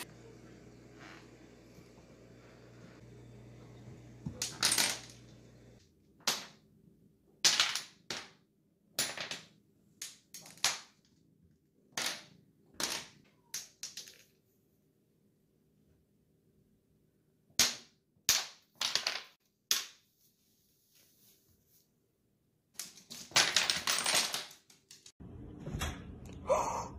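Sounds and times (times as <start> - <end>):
low steady hum: 0.0 - 5.9.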